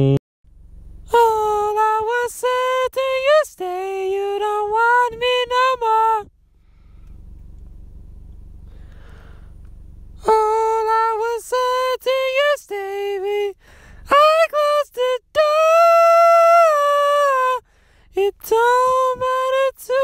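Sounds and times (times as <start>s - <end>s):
man singing a cappella: 0.0s - 0.2s, 1.1s - 6.3s, 10.2s - 17.6s, 18.2s - 20.0s
car cabin rumble: 0.0s - 20.0s.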